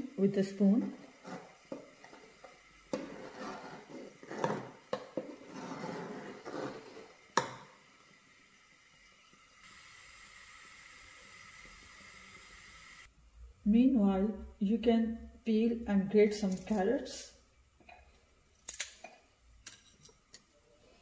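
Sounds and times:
faint steady hiss: 0:00.0 - 0:21.0
metal spoon stirring in pot: 0:00.8 - 0:07.4.

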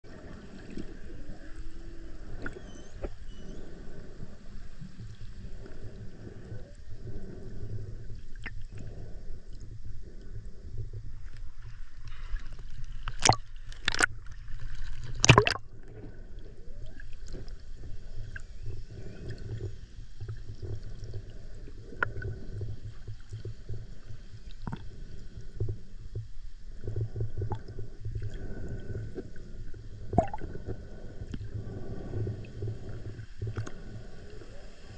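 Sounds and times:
underwater rumble: 0:00.0 - 0:34.9
water gurgling: 0:13.1 - 0:19.5, 0:30.0 - 0:31.0
sharp water splashes: 0:15.2 - 0:15.6.

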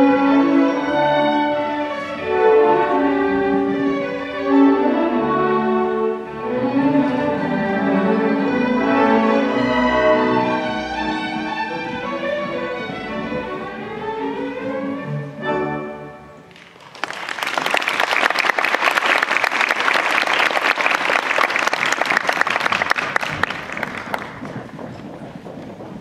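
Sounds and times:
live music held notes: 0:00.0 - 0:24.8
audience applauding: 0:16.5 - 0:24.7.

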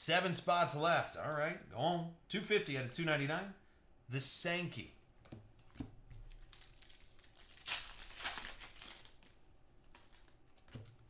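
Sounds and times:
cards rustling: 0:05.6 - 0:11.0
wrapper crinkling and tearing: 0:06.2 - 0:10.8.

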